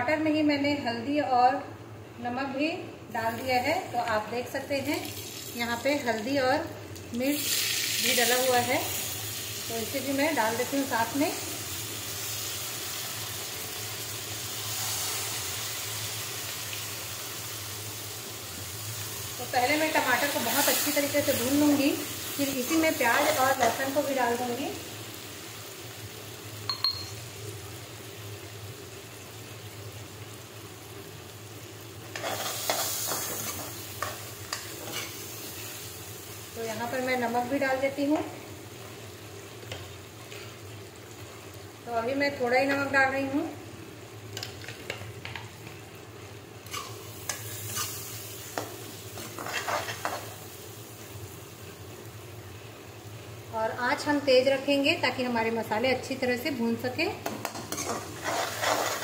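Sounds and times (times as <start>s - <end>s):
tomatoes sizzling in oil: 2.4s - 59.0s
spoon scraping metal pan: 32.1s - 35.2s, 49.2s - 50.2s, 57.5s - 59.0s.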